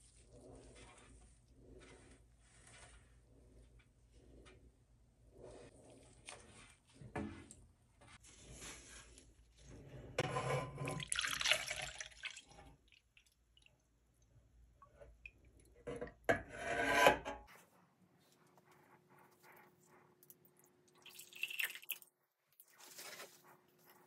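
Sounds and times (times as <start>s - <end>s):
liquid wax trickling and splashing: 11.0s - 13.9s, 20.2s - 24.0s.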